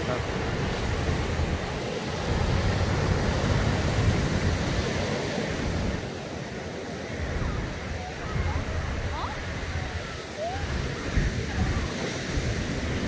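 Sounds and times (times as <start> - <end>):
surf breaking on beach: 0.0 - 13.0
wind rumbling on microphone: 0.0 - 13.0.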